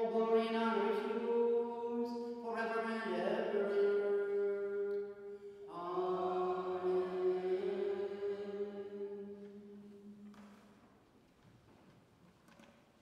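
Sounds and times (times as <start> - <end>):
slow liturgical chant: 0.0 - 11.4.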